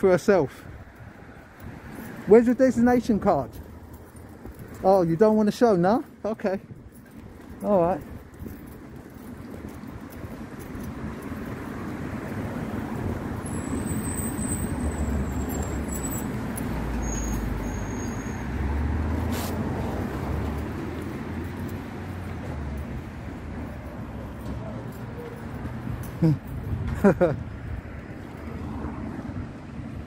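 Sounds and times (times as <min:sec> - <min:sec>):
road traffic passing: 0:00.0 - 0:30.0
high squeaks: 0:13.4 - 0:18.5.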